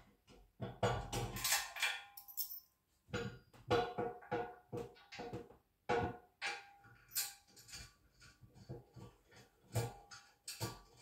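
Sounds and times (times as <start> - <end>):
metal parts clinking on steel: 1.4 - 2.7.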